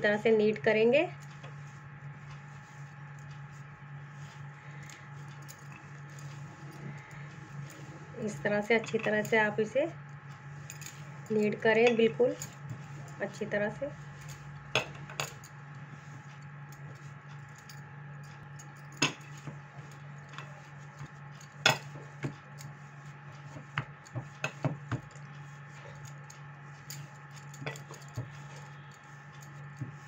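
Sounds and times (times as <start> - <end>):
dough being kneaded by hand: 0.0 - 30.0
steady low hum: 0.0 - 30.0
bangles clinking: 24.0 - 30.0.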